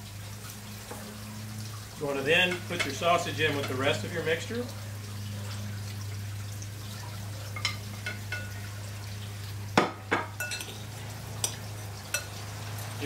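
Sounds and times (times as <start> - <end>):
metal spoon clinking on glass bowl: 10.4 - 10.8, 11.4 - 12.3.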